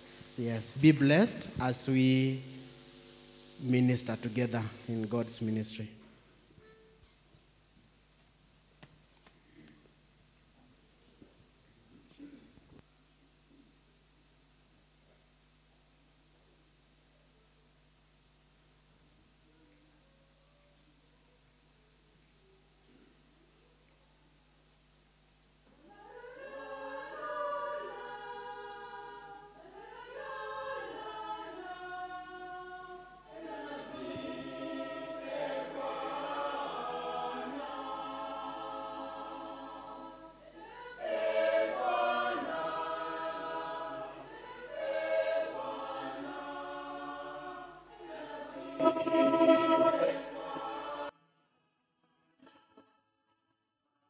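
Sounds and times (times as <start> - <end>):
mixed choir singing unaccompanied: 25.8 - 51.2.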